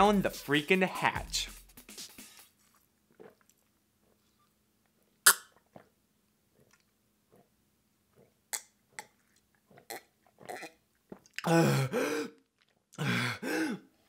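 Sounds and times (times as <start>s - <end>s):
man gulping water: 2.8s - 14.0s
man burping loudly: 11.4s - 13.9s.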